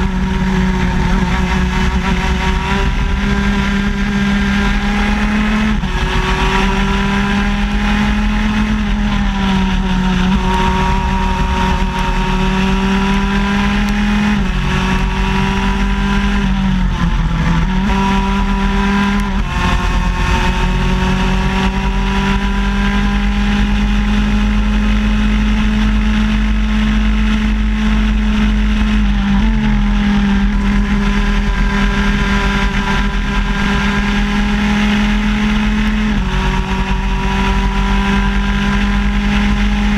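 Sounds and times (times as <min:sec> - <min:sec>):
kart engine running hard: 0:00.0 - 0:39.9.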